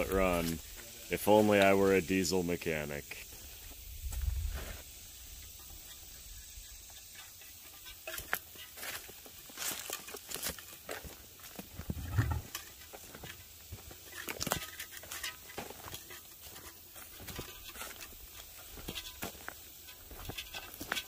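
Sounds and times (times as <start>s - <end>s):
footsteps crunching on dirt and twigs: 8.0s - 21.0s.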